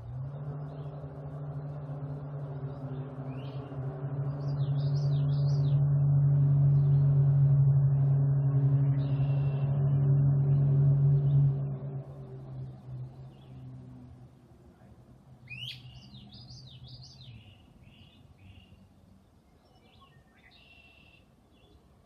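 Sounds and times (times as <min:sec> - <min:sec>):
low hum with overtones: 0:00.0 - 0:19.6
small bird chirping: 0:15.5 - 0:18.9.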